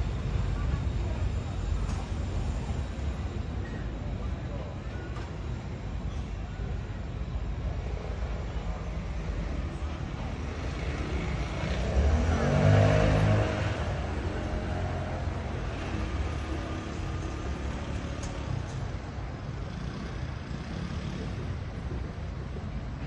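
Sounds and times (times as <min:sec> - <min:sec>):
traffic rumble: 0:00.0 - 0:23.0
vehicle engine accelerating: 0:10.8 - 0:18.5.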